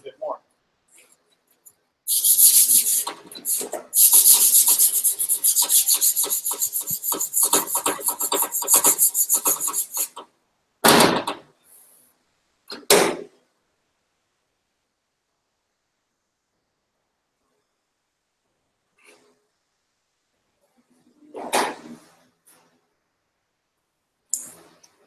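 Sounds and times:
sandpaper rubbing on metal: 2.1 - 10.2.

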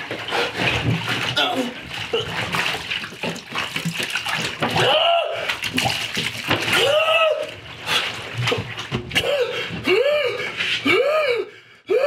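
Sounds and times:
liquid splashing in bathtub: 0.0 - 10.9.

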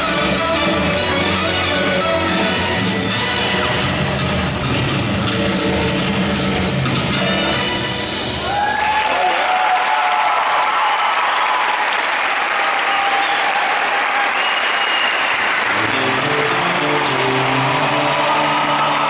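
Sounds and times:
audience applauding: 8.5 - 19.0
routine music: 15.7 - 19.0.

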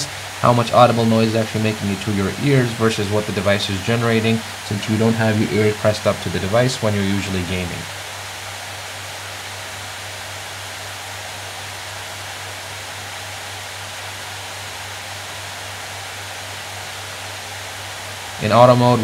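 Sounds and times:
laptop cooling fans spinning: 0.0 - 19.0.

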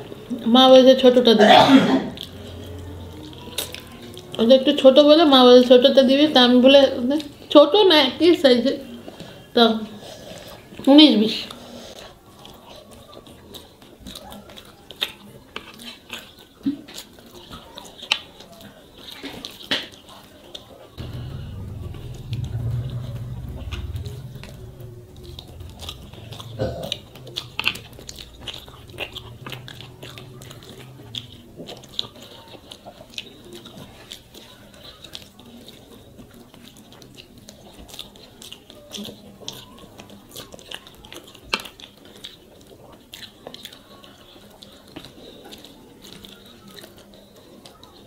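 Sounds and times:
chewing: 0.0 - 48.0.

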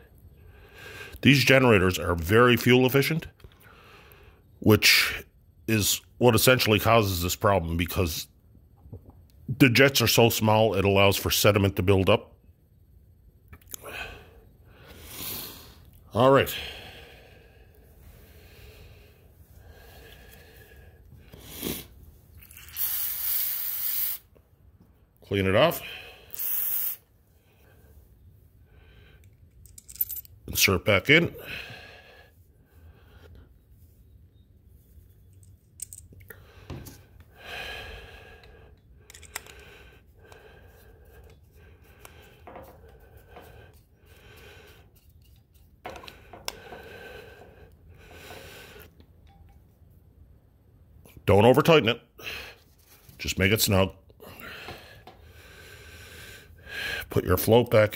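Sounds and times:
aerosol can spraying: 22.6 - 24.3, 26.3 - 27.0
small parts handled: 29.2 - 30.4, 35.2 - 37.3, 38.4 - 39.7, 44.9 - 46.6
screwdriver clicks and scrapes: 39.1 - 39.6, 44.9 - 46.6.

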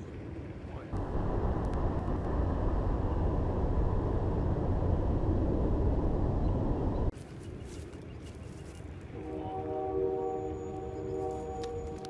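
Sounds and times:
wind buffeting microphone: 0.8 - 7.2.

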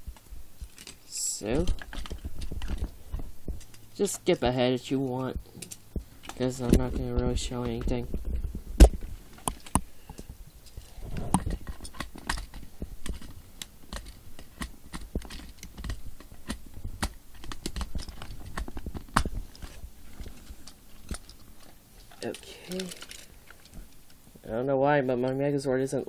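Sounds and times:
plastic toy parts clicking: 10.7 - 24.2.

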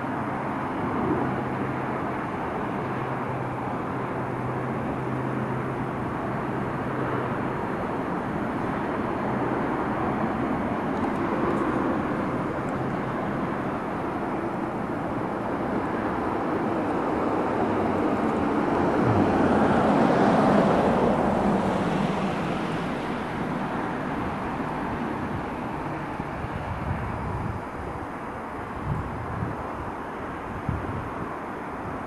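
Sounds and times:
vehicle passing by: 16.8 - 26.6.

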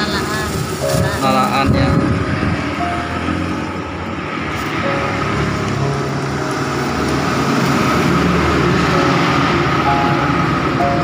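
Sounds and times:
road traffic passing: 0.0 - 11.0.

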